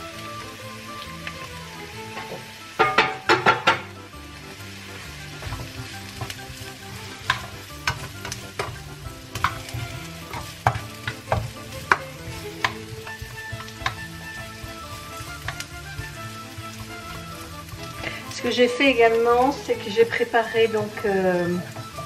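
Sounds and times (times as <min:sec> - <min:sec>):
food sizzling in a frying pan: 0:00.0 - 0:22.0
spatula scraping a pan: 0:05.0 - 0:18.8.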